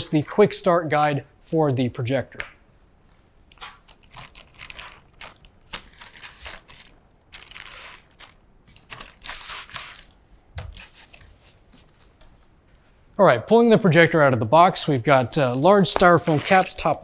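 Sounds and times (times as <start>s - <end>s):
plastic bag rustling: 3.6s - 11.6s
hands scraping styrofoam: 16.0s - 16.9s.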